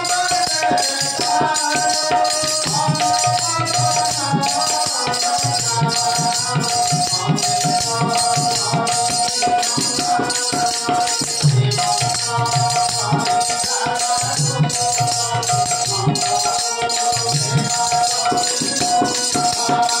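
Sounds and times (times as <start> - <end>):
harmonium held notes: 0.0 - 20.0.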